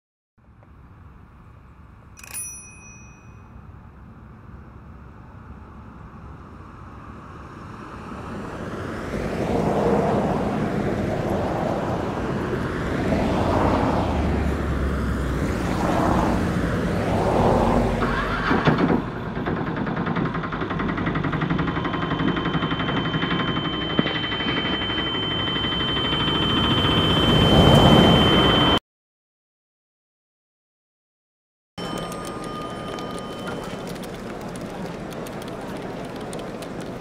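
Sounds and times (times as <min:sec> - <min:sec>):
road traffic passing: 0:00.4 - 0:28.8, 0:31.8 - 0:37.0
steady high tone: 0:21.6 - 0:28.8, 0:31.8 - 0:34.8.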